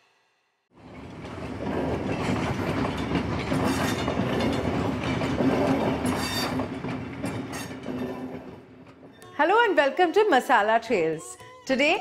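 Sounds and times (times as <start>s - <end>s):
rumbling clattering noise: 0.8s - 9.2s.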